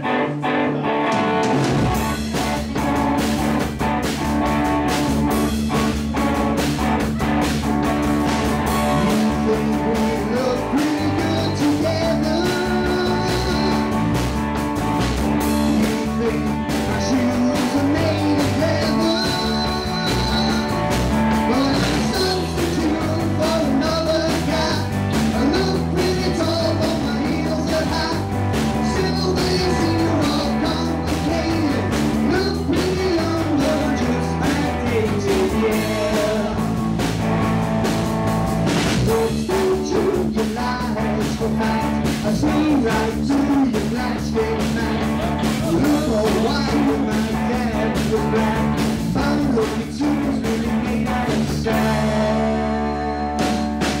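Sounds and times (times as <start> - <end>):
bass guitar: 0.0 - 54.0
electric guitars: 0.0 - 54.0
drum kit: 1.0 - 54.0
man singing: 8.7 - 14.2, 15.3 - 37.0, 39.0 - 54.0.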